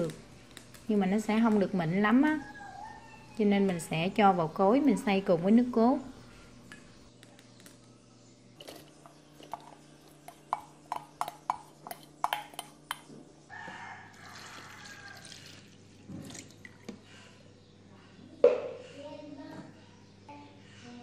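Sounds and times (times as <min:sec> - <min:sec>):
liquid pouring into jug: 0:14.2 - 0:17.0.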